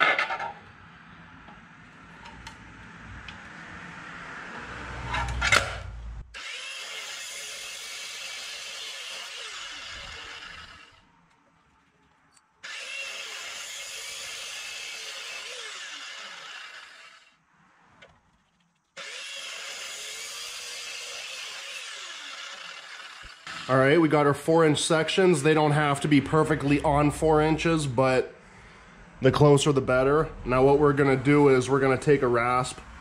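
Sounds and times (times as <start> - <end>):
electric saw cutting copper pipe: 4.4 - 11.1, 12.6 - 17.4, 19.0 - 24.3.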